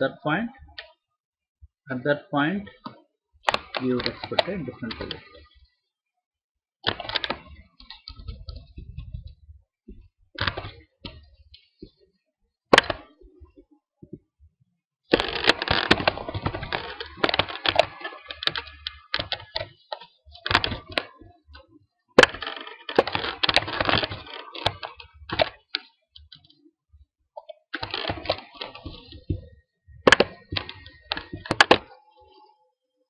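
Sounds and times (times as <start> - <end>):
keyboard typing: 15.1 - 21.4, 30.1 - 32.5.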